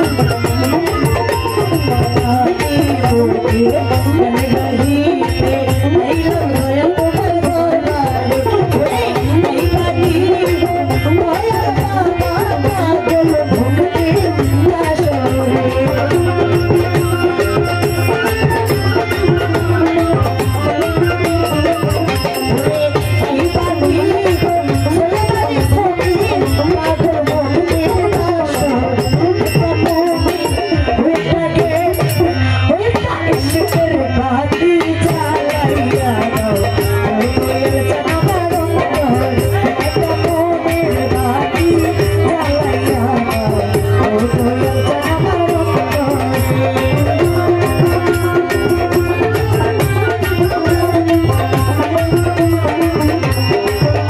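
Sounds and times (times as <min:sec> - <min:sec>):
percussion keeping a beat: 0:00.0 - 0:54.0
woman singing into a microphone: 0:00.0 - 0:54.0.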